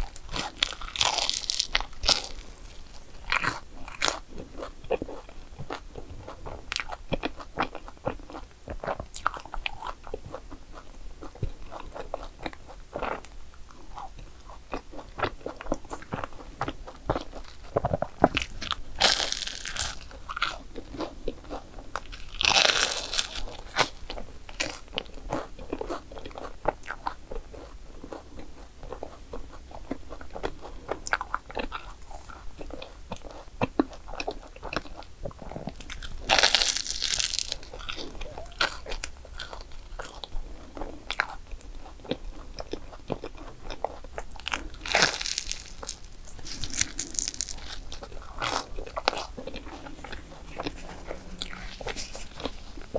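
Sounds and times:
crunching bites: 0:00.0 - 0:10.0, 0:13.9 - 0:27.7, 0:35.6 - 0:40.3, 0:42.8 - 0:52.9
chewing: 0:00.0 - 0:52.9.

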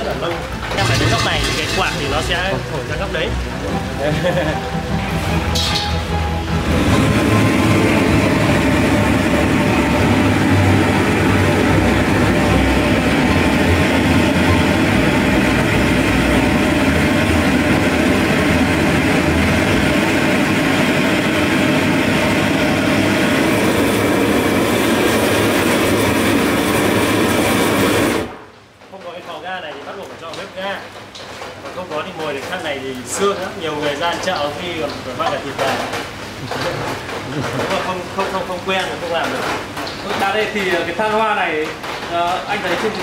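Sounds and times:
blowtorch hissing: 0:05.3 - 0:28.6.

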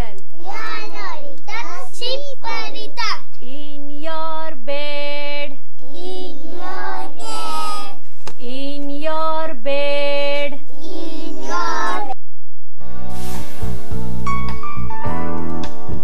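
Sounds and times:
woman singing: 0:03.4 - 0:05.6, 0:08.4 - 0:10.6
children singing: 0:05.9 - 0:08.0, 0:10.7 - 0:12.2.

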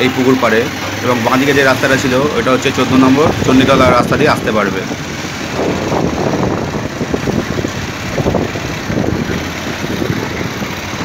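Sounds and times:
motorbike engine running: 0:00.0 - 0:11.0
wind rumbling on microphone: 0:03.0 - 0:11.0.

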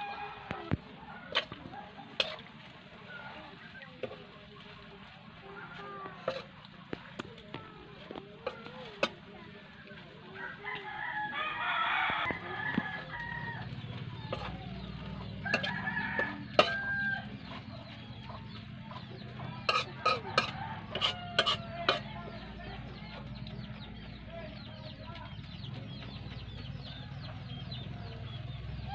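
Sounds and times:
rooster crowing: 0:00.0 - 0:00.7, 0:10.4 - 0:14.5, 0:15.4 - 0:17.3, 0:20.1 - 0:22.0
chickens clucking: 0:00.0 - 0:28.9
utensil clacking in metal wok: 0:06.2 - 0:07.4, 0:14.2 - 0:17.7, 0:19.3 - 0:22.1.

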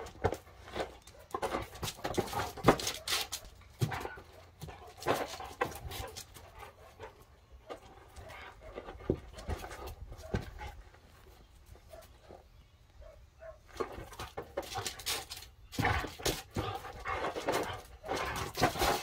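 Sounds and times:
ball knocks and paw scrapes: 0:00.0 - 0:06.5, 0:07.6 - 0:10.9, 0:13.6 - 0:19.0.

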